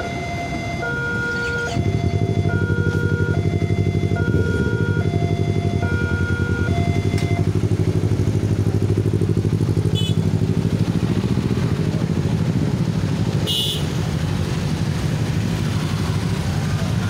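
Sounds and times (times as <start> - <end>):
electronic warning tones: 0.0 - 7.5
motorcycle engines throbbing: 0.0 - 17.0
horn beep: 0.8 - 7.4.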